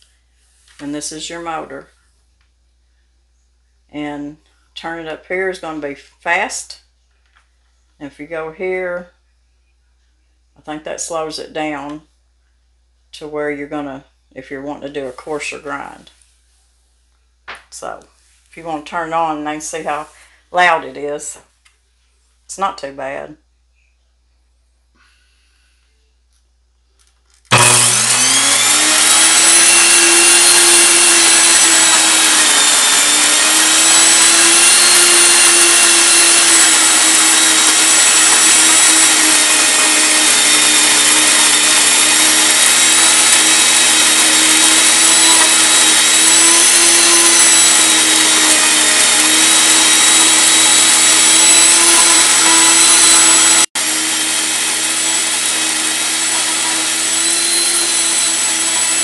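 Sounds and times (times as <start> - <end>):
electric grain mill whining: 27.5 - 59.0.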